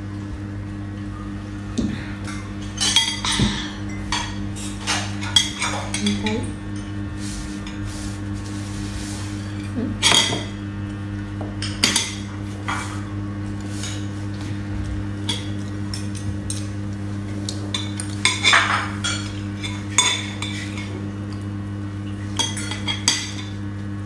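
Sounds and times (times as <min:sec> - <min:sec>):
low steady hum: 0:00.0 - 0:24.0
cutlery clinking on ceramic bowls: 0:02.8 - 0:06.2, 0:22.4 - 0:23.5.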